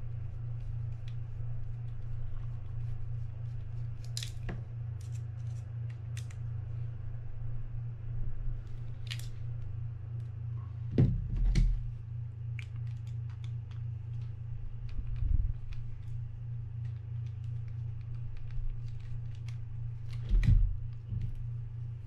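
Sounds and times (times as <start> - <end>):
steady low hum: 0.0 - 22.0
heavy thumps: 10.9 - 11.9.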